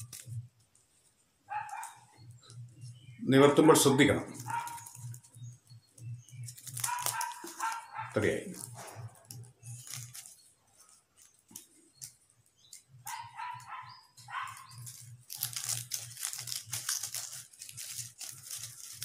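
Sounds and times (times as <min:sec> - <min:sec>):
paper rustling and crinkling: 0:00.0 - 0:01.9, 0:04.3 - 0:05.5, 0:06.3 - 0:13.6, 0:14.3 - 0:19.0.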